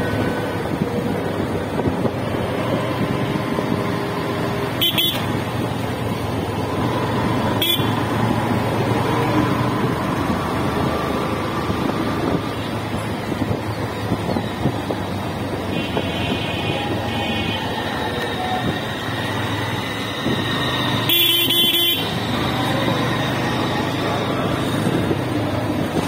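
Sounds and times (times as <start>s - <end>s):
road traffic: 0.0s - 26.0s.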